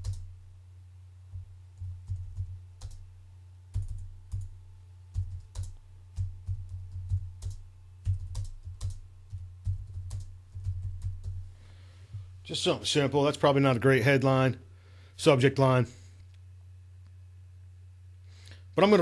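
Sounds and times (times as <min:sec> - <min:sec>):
computer keyboard typing: 0:00.0 - 0:00.3, 0:01.4 - 0:03.0, 0:03.7 - 0:11.4
steady low hum: 0:00.0 - 0:19.0.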